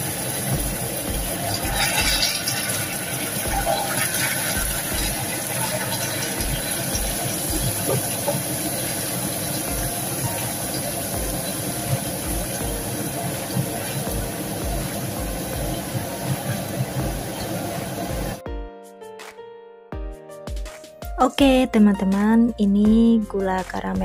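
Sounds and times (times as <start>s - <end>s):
syrup boiling and bubbling: 0.0s - 18.4s.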